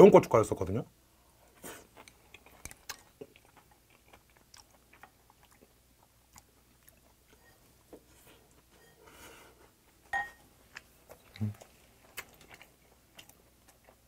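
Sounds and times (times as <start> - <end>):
person chewing food: 1.5 - 8.7, 9.5 - 14.0.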